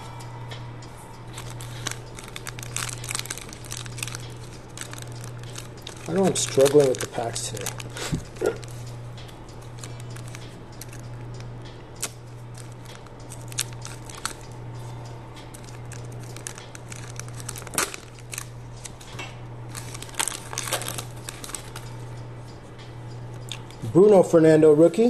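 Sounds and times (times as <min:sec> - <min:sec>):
steady low hum: 0:00.0 - 0:25.0
foil wrapper crinkling and tearing: 0:01.3 - 0:08.8, 0:09.6 - 0:11.2, 0:12.0 - 0:14.5, 0:15.5 - 0:19.0, 0:19.7 - 0:21.8.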